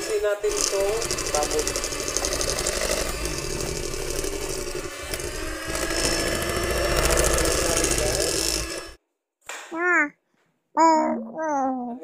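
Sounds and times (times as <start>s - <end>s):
whisk scraping metal pan: 0.0s - 9.0s.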